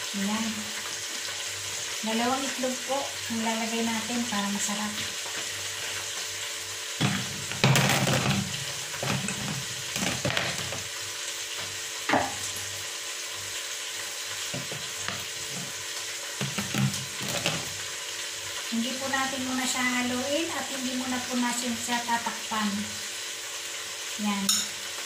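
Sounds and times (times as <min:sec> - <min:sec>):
vegetables sizzling in a pot: 0:00.0 - 0:25.0
knocks and clatter on pot: 0:07.0 - 0:10.9, 0:14.5 - 0:15.8, 0:16.4 - 0:17.7.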